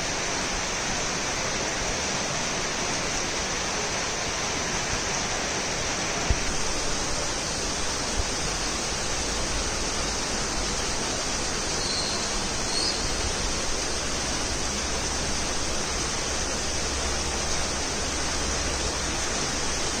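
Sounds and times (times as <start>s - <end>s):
heavy rain hissing: 0.0s - 20.0s.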